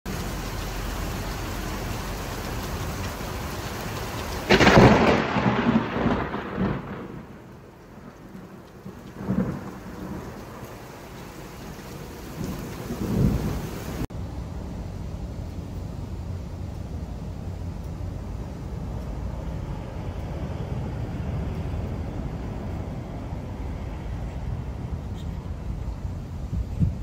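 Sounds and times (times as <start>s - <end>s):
heavy rain falling: 0.1s - 27.0s
thunder clap and rumble: 0.1s - 27.0s.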